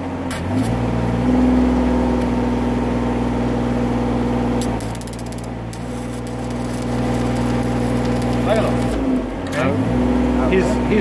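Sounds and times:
truck engine running: 1.8 - 11.0
welding arc crackles: 4.6 - 9.3.

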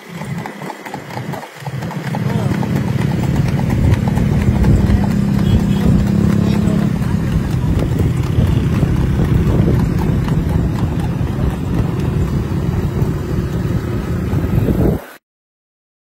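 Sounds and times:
horse hoofbeats: 0.0 - 15.0
motorcycle engine and road rumble: 0.0 - 15.1.

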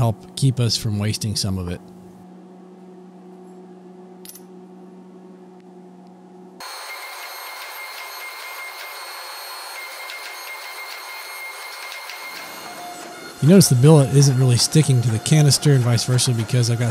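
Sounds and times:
low electrical hum: 0.0 - 6.6, 12.8 - 16.9
hydraulic press hissing and whining: 6.6 - 16.9.

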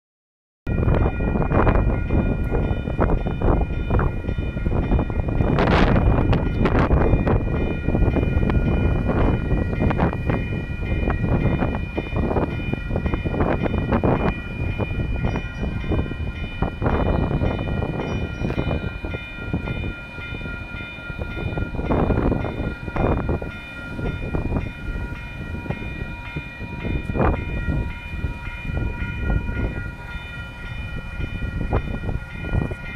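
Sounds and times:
crossing warning bell ringing: 0.7 - 32.9
light rail trains rumbling over rails: 0.7 - 32.9.

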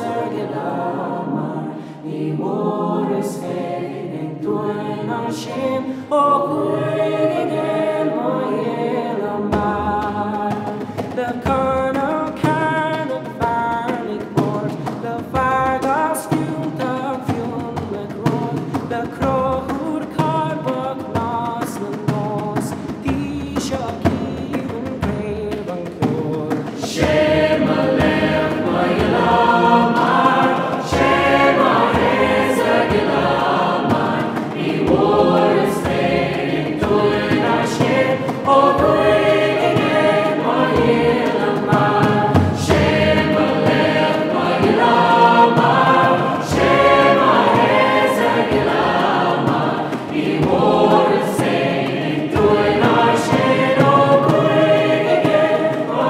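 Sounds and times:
choir singing: 0.0 - 11.1, 26.8 - 56.0.

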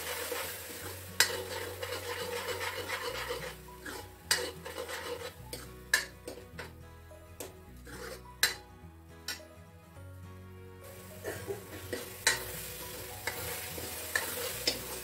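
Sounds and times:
spoon scraping paste in pan: 0.2 - 6.8, 7.4 - 8.6, 11.7 - 15.0
spoon clinking against pan: 8.4 - 8.6, 11.9 - 12.5.

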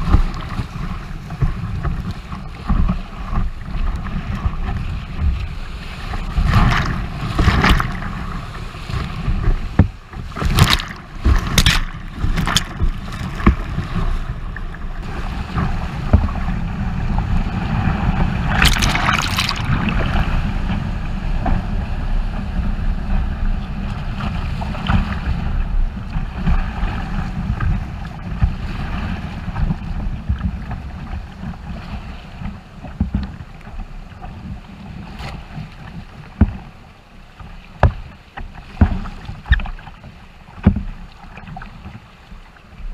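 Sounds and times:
water splashing on camera: 0.0 - 22.6
wind on microphone: 0.0 - 42.9
rapids rushing: 18.3 - 20.5.

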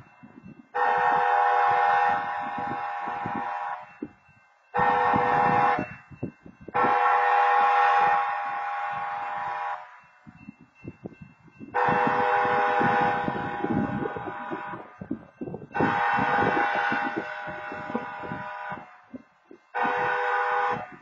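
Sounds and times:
train horn blasts: 0.7 - 4.1, 4.7 - 6.0, 6.7 - 10.0, 11.7 - 15.0, 15.6 - 21.0.

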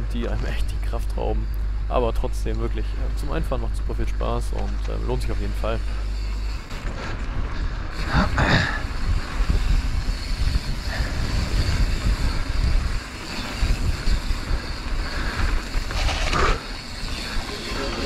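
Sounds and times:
bike tyres rumbling on trail: 0.0 - 18.0
wind buffeting microphone: 7.2 - 17.5.

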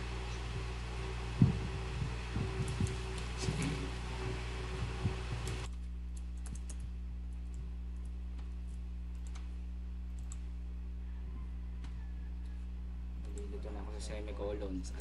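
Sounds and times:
low electrical hum: 0.0 - 15.0
keyboard keystrokes: 6.2 - 7.6.

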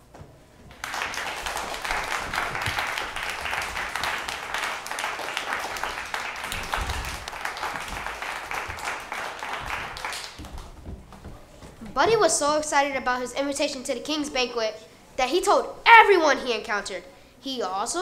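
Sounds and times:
audience applauding: 0.7 - 10.7.

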